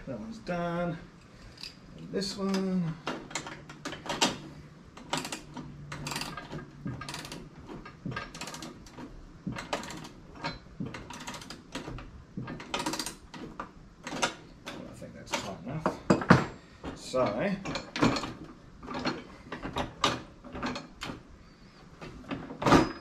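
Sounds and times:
ratchet wrench clicking: 0:05.0 - 0:07.5.

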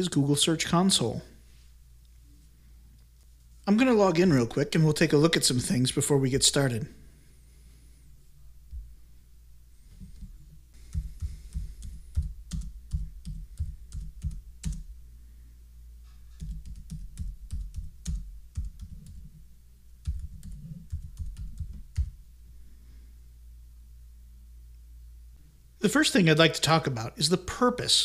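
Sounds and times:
typing on a keyboard: 0:10.9 - 0:14.9, 0:16.4 - 0:19.3, 0:20.0 - 0:22.2.

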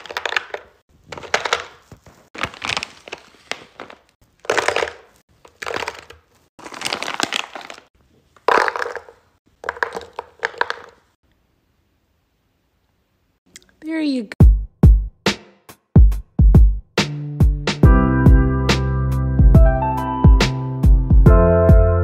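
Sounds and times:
frozen fruit clattering into plastic tray: 0:00.0 - 0:11.0
plastic bag crinkling: 0:00.0 - 0:11.1.

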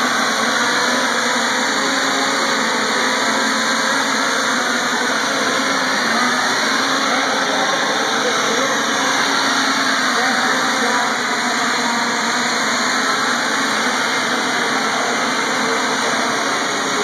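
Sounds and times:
multicopter propellers whirring: 0:00.0 - 0:17.0.

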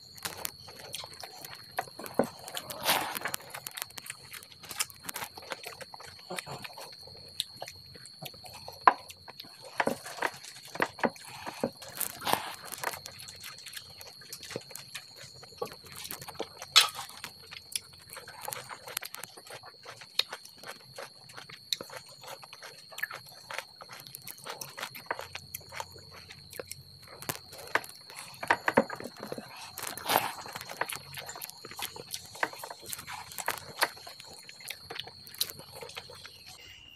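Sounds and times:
wet chewing and lip smacking: 0:00.1 - 0:36.6
faint high-pitched tone: 0:36.1 - 0:36.9.

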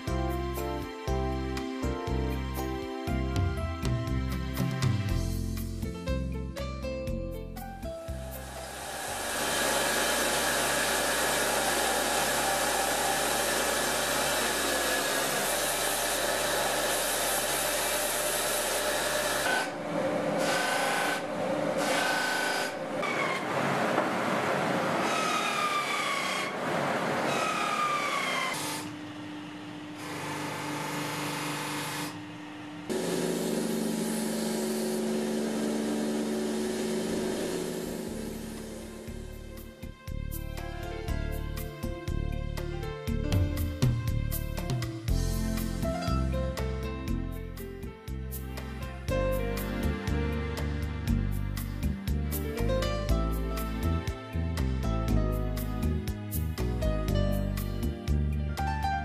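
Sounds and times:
power tool grinding: 0:08.4 - 0:23.4, 0:30.0 - 0:32.3, 0:32.9 - 0:39.3.

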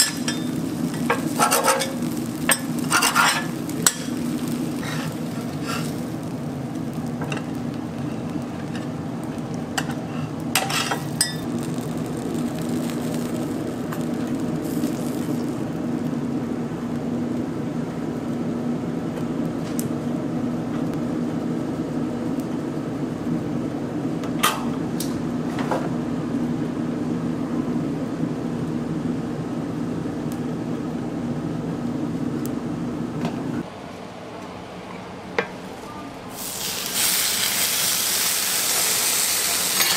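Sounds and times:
metal spatulas clinking on griddle: 0:00.0 - 0:04.2, 0:10.6 - 0:11.4
steady low hum: 0:00.0 - 0:36.9.

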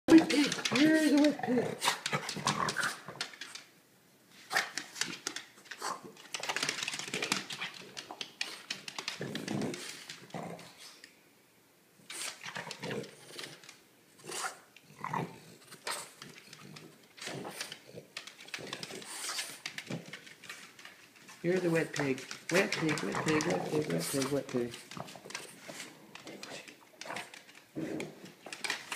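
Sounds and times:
claws clicking on wooden floor: 0:00.1 - 0:03.7, 0:04.5 - 0:10.8, 0:15.7 - 0:28.9.

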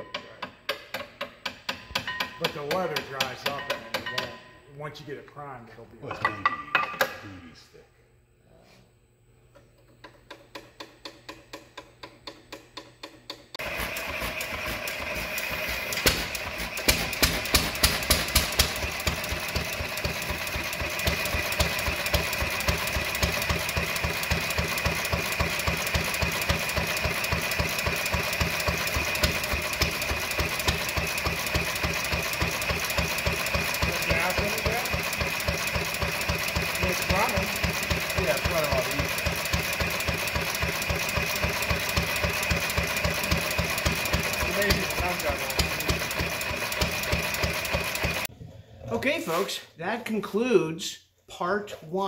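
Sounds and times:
stationary engine running: 0:13.6 - 0:48.3.

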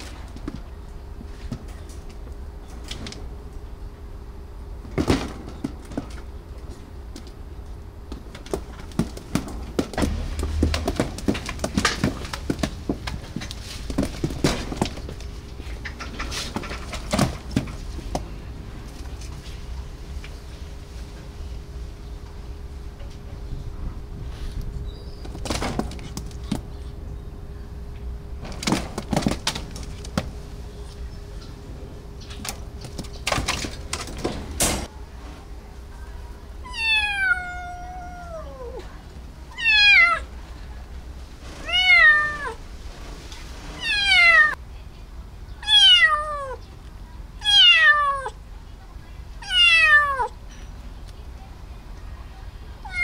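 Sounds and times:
scattered clicks and knocks: 0:08.1 - 0:18.3
kitten meowing: 0:36.7 - 0:38.8, 0:39.5 - 0:40.3, 0:41.6 - 0:42.6, 0:43.8 - 0:44.6, 0:45.6 - 0:46.6, 0:47.4 - 0:48.4, 0:49.4 - 0:50.3.

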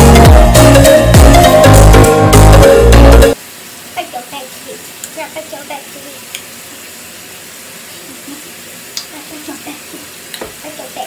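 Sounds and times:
water running from sink tap: 0:03.3 - 0:11.0.

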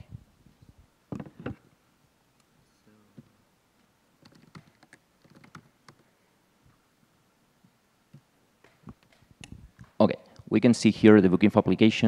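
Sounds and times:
laptop keyboard typing: 0:04.2 - 0:06.1.

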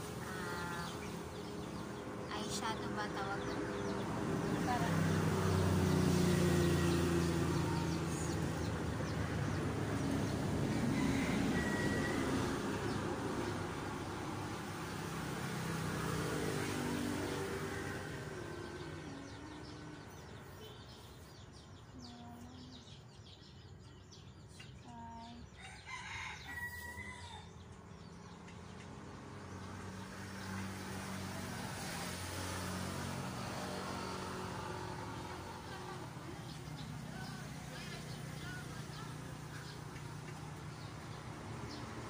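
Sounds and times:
vehicle engine hum: 0:00.0 - 0:24.0, 0:27.5 - 0:42.0
rooster crowing: 0:10.6 - 0:13.0, 0:25.6 - 0:27.6.

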